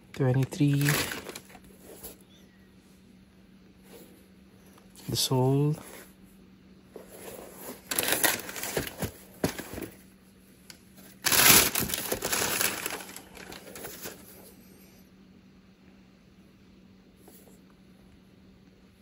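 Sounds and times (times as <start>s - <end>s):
sneaker handling rustle: 0.4s - 2.2s, 6.9s - 10.1s, 10.9s - 14.6s.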